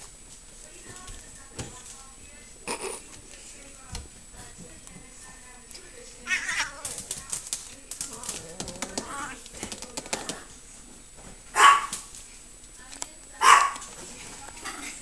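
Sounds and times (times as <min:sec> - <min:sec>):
cat meowing: 0:06.2 - 0:06.8.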